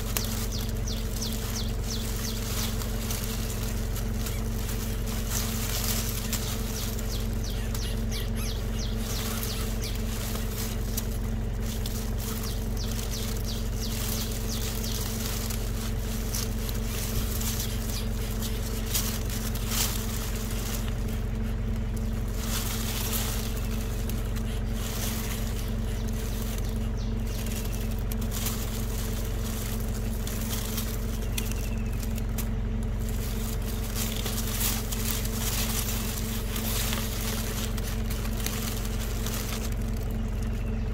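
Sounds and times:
dry grass rustling: 0.0s - 40.9s
low mechanical hum: 0.0s - 40.9s.

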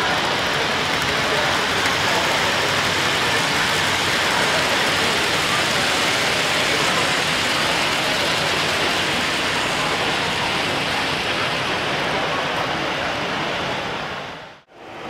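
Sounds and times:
busy hall din: 0.0s - 15.0s
model train wheels rumbling on rails: 0.0s - 15.0s.

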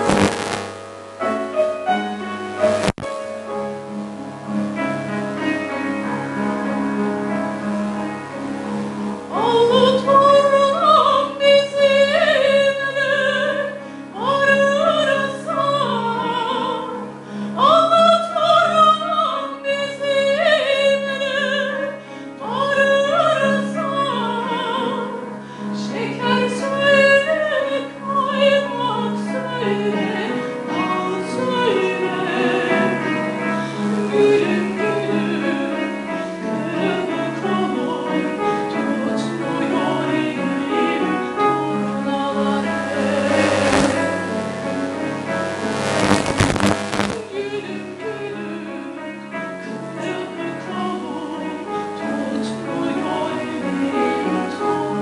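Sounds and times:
soprano singing with vibrato: 9.3s - 25.2s, 25.8s - 33.4s, 34.0s - 44.1s, 47.2s - 55.0s.

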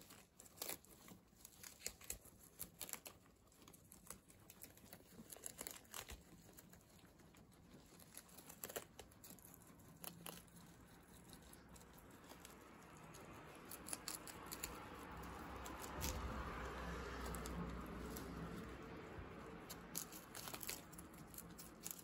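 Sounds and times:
guinea pigs chewing lettuce: 0.0s - 22.0s
leaf rustles: 11.5s - 22.0s.

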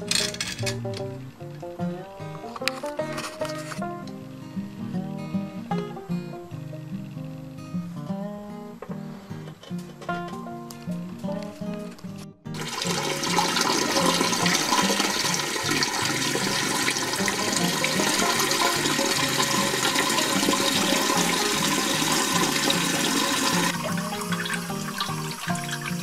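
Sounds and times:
toilet tank refilling: 12.5s - 26.0s.

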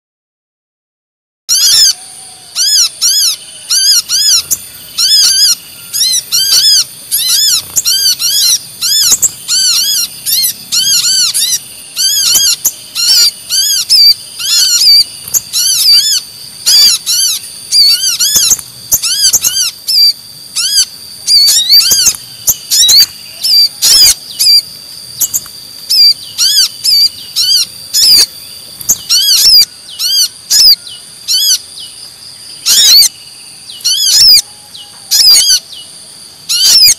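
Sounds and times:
second bird calling: 1.5s - 31.9s
rapid sharp bird chirps: 1.5s - 36.9s
steady high-pitched tone: 1.7s - 31.2s.

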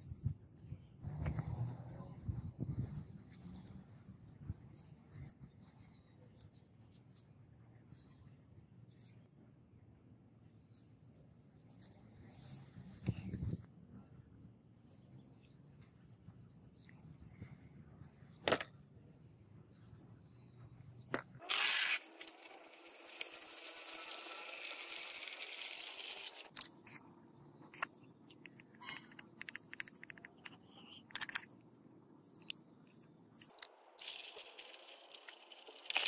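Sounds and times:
small ticks and crackles: 32.4s - 36.0s.

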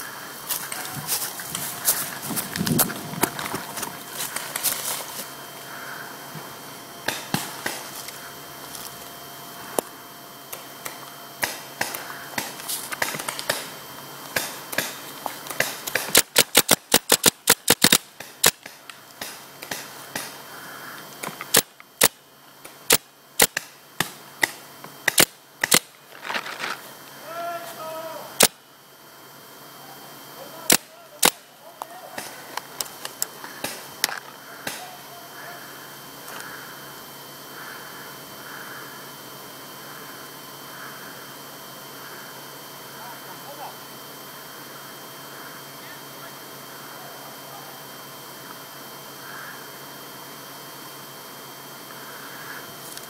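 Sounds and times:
paintball markers firing: 14.3s - 20.4s, 22.9s - 25.9s.

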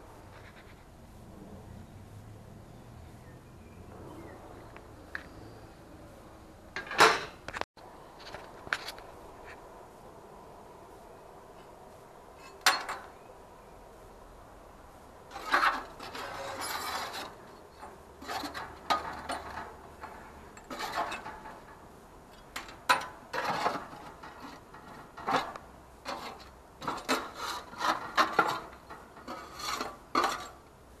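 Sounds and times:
scraping and rubbing: 0.2s - 0.9s, 15.3s - 21.8s, 22.5s - 30.6s.

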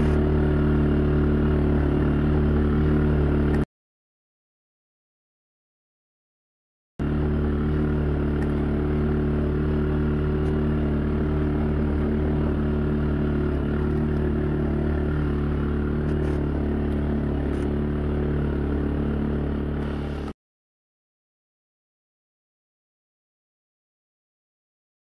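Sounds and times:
off-road vehicle engine humming: 0.0s - 3.7s, 7.0s - 20.4s.

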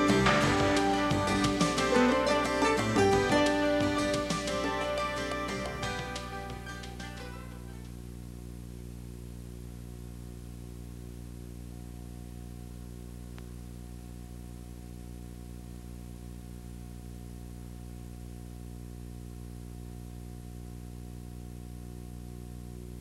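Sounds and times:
electrical hum and buzz: 0.0s - 23.0s
faint tape hiss: 0.0s - 23.0s
faint tick: 13.3s - 13.5s.

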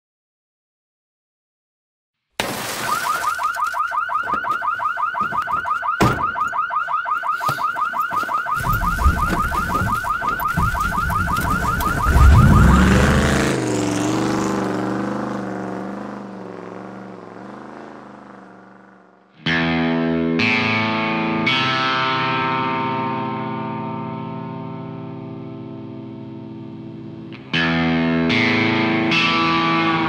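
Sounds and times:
electronic alarm warbling: 2.8s - 13.7s.

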